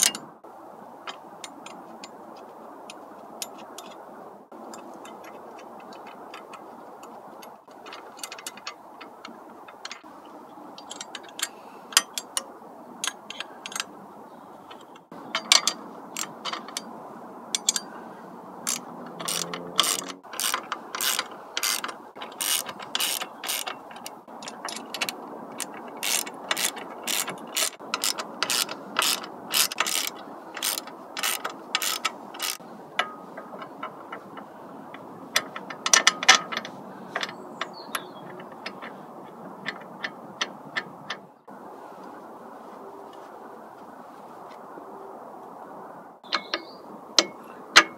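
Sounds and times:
socket ratchet clicking: 17.6s - 17.9s, 18.6s - 34.0s.

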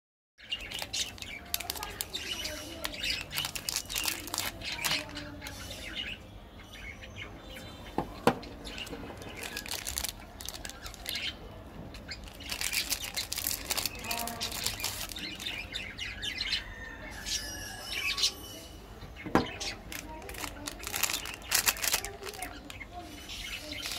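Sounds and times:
wrappers crinkling: 0.6s - 5.1s, 8.8s - 11.2s, 12.2s - 15.6s, 19.8s - 22.8s, 23.7s - 23.9s.

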